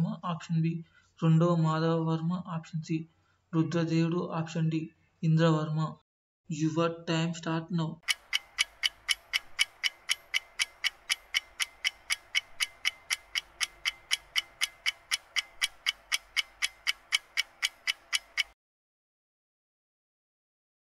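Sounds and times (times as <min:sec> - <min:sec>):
countdown timer ticking: 0:08.0 - 0:18.6.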